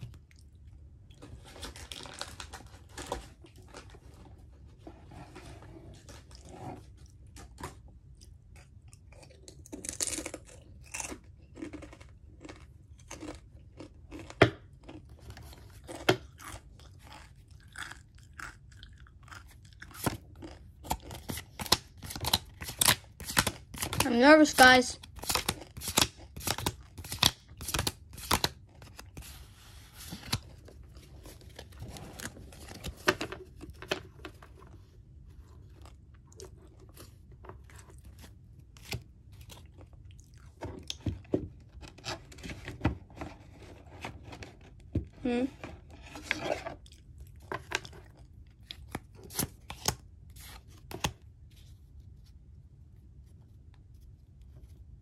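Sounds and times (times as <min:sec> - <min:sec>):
trading cards snapping and rustling: 0:20.8 - 0:29.4, 0:30.0 - 0:30.5, 0:48.8 - 0:50.0.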